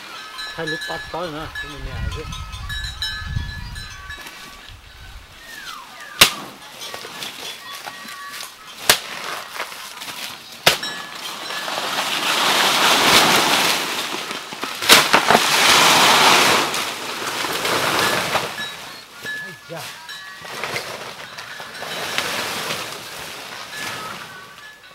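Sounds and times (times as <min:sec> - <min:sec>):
leaves and brush rustling: 0:00.0 - 0:24.9
blade chopping plant stems: 0:06.2 - 0:07.4, 0:08.0 - 0:18.7.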